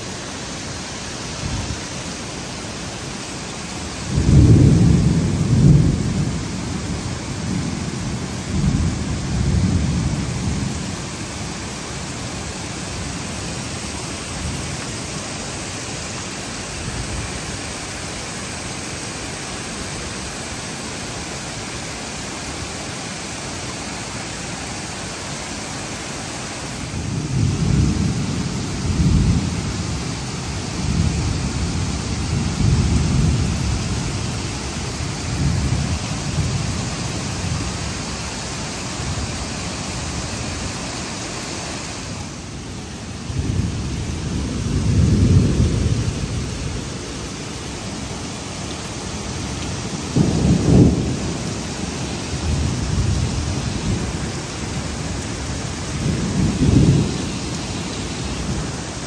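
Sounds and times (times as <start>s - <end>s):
heavy rain falling: 0.0s - 59.0s
rolling thunder: 4.1s - 10.7s, 26.9s - 30.0s, 30.8s - 37.8s, 43.2s - 47.0s, 49.5s - 59.0s.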